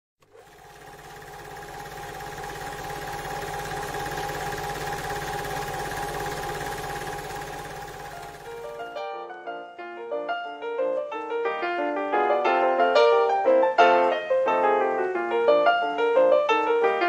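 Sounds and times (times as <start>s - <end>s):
film projector clattering: 0.2s - 9.0s.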